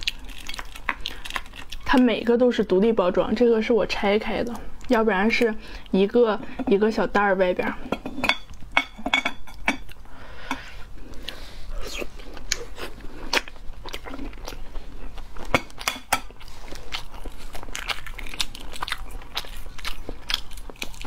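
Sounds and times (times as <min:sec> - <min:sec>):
chewing: 0:00.0 - 0:02.0, 0:11.1 - 0:21.0.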